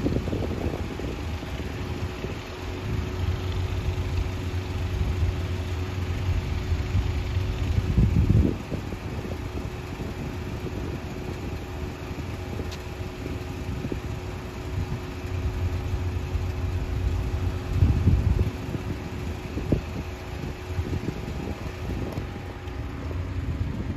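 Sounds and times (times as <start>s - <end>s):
ship engine humming: 0.0s - 23.9s
wind buffeting microphone: 0.0s - 23.9s.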